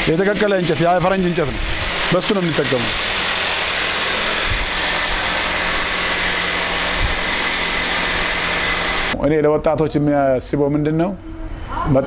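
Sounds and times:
machine motor hum and hiss: 0:00.0 - 0:09.2.

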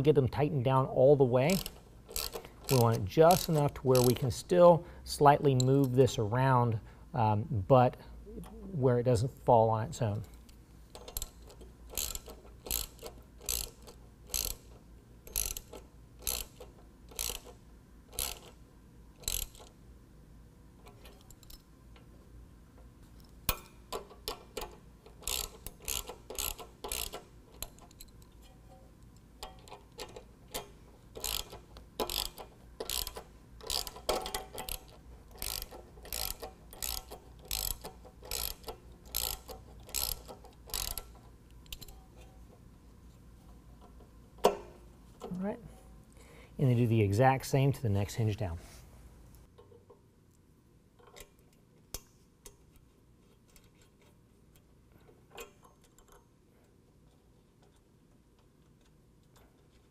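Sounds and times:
socket ratchet clicking: 0:01.5 - 0:04.3, 0:10.9 - 0:18.6, 0:19.2 - 0:19.8, 0:23.4 - 0:28.5, 0:29.4 - 0:42.0.

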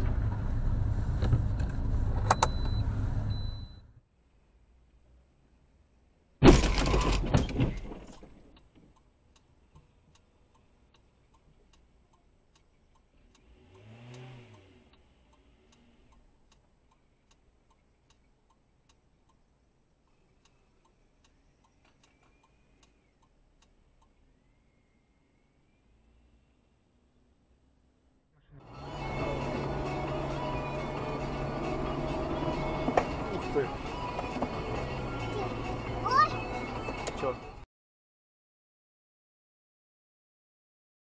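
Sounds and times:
car crash: 0:06.4 - 0:08.5
faint regular ticking: 0:08.6 - 0:24.3.

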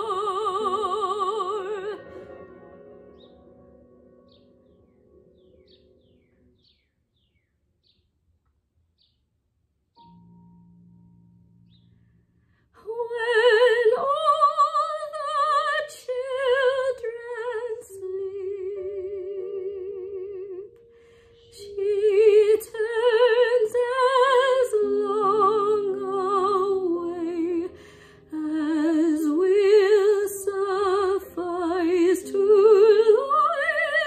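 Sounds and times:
soprano singing: 0:00.0 - 0:04.9, 0:12.8 - 0:34.0
piano accompaniment: 0:00.0 - 0:08.0, 0:09.9 - 0:34.0.

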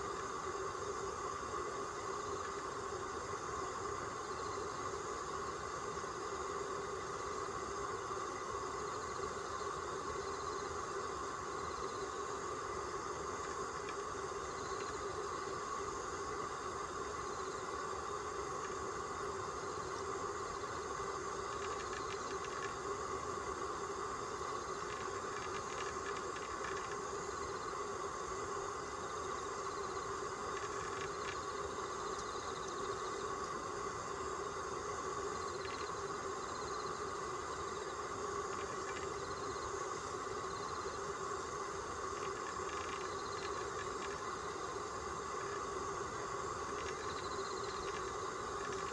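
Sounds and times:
steady background hum: 0:00.0 - 0:48.9
faint ticks: 0:02.3 - 0:02.7, 0:13.2 - 0:15.8, 0:18.5 - 0:18.8, 0:19.7 - 0:23.0, 0:24.4 - 0:27.8, 0:29.1 - 0:33.6, 0:35.2 - 0:48.9.

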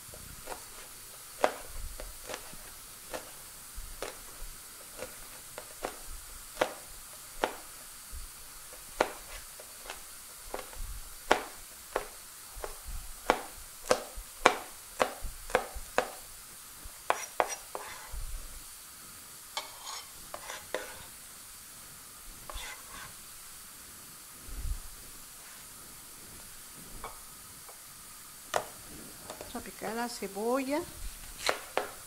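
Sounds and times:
knife chopping on cutting board: 0:00.4 - 0:03.4, 0:04.0 - 0:04.3, 0:06.6 - 0:07.8, 0:08.7 - 0:16.2, 0:17.0 - 0:18.1, 0:19.6 - 0:21.0, 0:22.5 - 0:23.1, 0:31.4 - 0:32.0.

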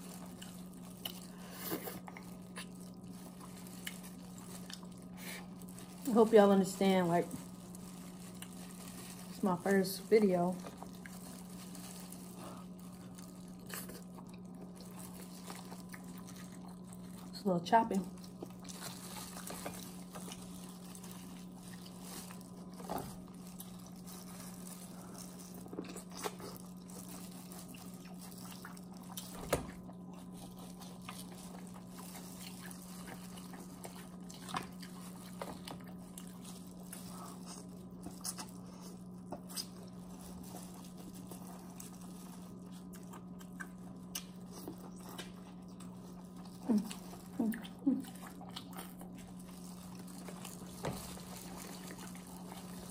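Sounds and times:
chewing: 0:00.0 - 0:17.4, 0:18.0 - 0:52.9
crab shell crunching: 0:18.2 - 0:52.9.

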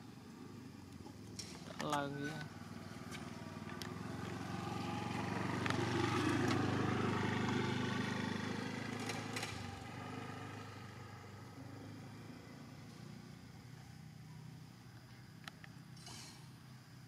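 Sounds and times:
engine running: 0:01.3 - 0:13.4.

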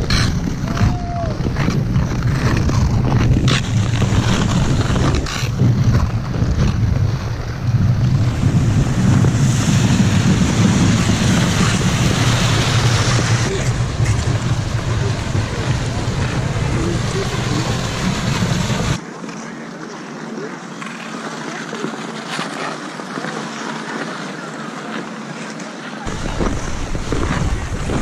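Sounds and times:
ice-skate blades scraping ice: 0:00.0 - 0:14.3
wind buffeting microphone: 0:00.0 - 0:19.0, 0:26.0 - 0:28.0.

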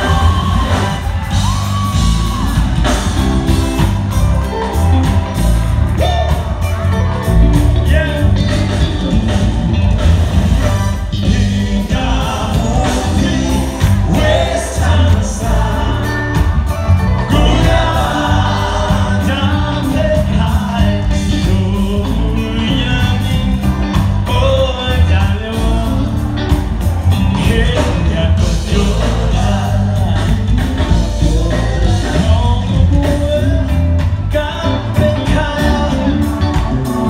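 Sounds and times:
heavy bass line: 0:00.0 - 0:37.0
live band music: 0:00.0 - 0:37.0
person singing: 0:11.0 - 0:26.6, 0:27.3 - 0:37.0.

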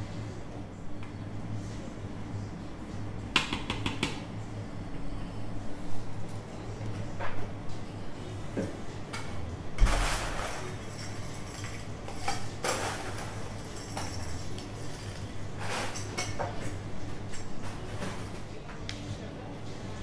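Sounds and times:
steady low hum: 0:00.0 - 0:20.0
utensils and containers clinking: 0:09.8 - 0:18.3.

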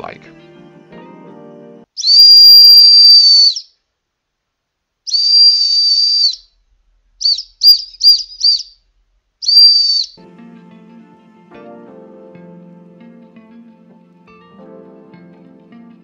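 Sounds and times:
shrill whistle blasts: 0:02.0 - 0:03.7, 0:05.1 - 0:06.6, 0:07.2 - 0:08.8, 0:09.4 - 0:10.2.

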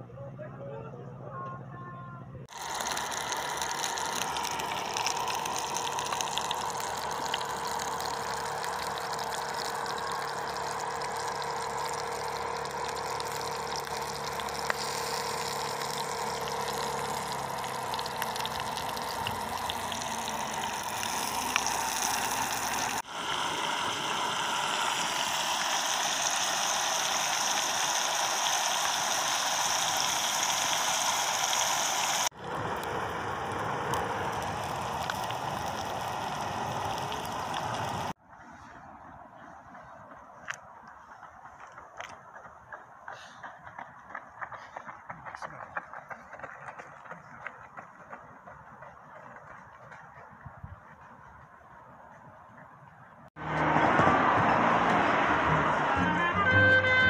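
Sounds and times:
sausages sizzling in a frying pan: 0:02.5 - 0:32.3, 0:32.9 - 0:38.1
gas camping stove hissing: 0:02.5 - 0:38.2.

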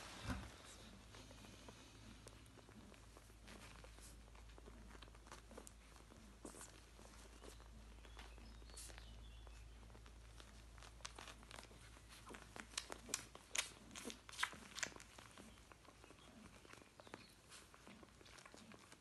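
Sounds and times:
puppies suckling: 0:00.0 - 0:19.0.

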